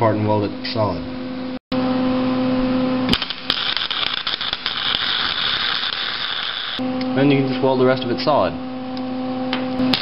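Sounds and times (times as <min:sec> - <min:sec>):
welding arc crackling: 0:03.1 - 0:06.8.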